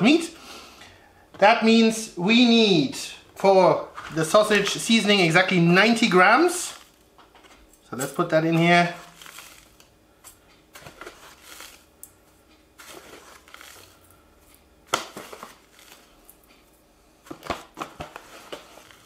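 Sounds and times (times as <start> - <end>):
foil bag crinkling: 5.8 - 7.1, 8.0 - 9.9, 10.8 - 11.9, 12.8 - 14.2, 14.9 - 16.5, 17.3 - 19.0.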